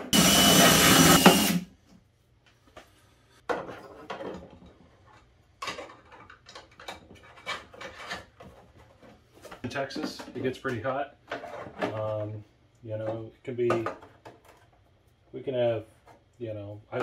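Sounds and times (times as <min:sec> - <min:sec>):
power drill with hole saw: 0:00.0 - 0:01.7.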